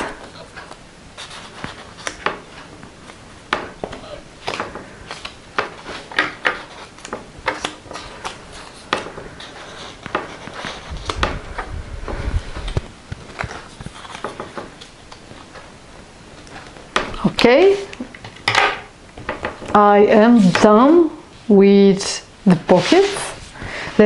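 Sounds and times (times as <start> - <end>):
paper cards rustling and tapping: 0.0 - 15.7, 16.3 - 19.8
low rubbing rumble: 10.8 - 13.0.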